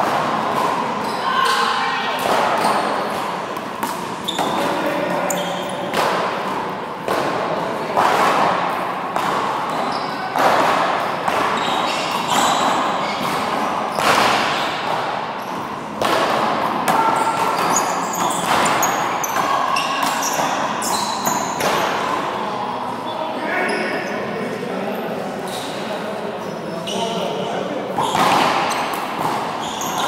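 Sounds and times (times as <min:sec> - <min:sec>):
handball hitting wall and floor: 0:00.0 - 0:01.6, 0:02.2 - 0:22.2, 0:28.0 - 0:30.0
sneakers squeaking on court: 0:01.0 - 0:01.7, 0:02.4 - 0:05.9, 0:09.7 - 0:10.3, 0:11.4 - 0:15.7, 0:17.1 - 0:22.6, 0:28.0 - 0:30.0.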